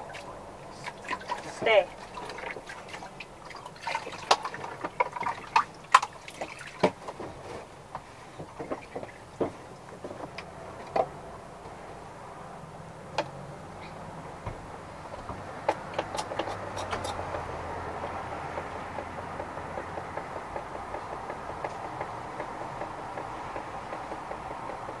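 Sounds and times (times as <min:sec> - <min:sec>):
water splashing in plastic tub: 0:00.0 - 0:10.0
sharp clicks and knocks: 0:14.4 - 0:25.0.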